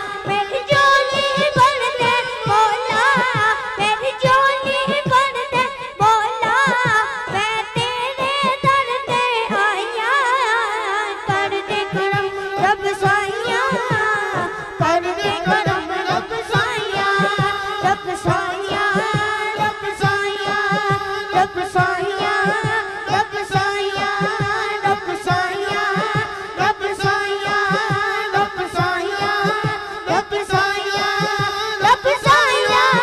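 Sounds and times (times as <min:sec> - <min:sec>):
boy singing through microphone: 0:00.0 - 0:33.0
low rhythmic beat: 0:11.2 - 0:33.0.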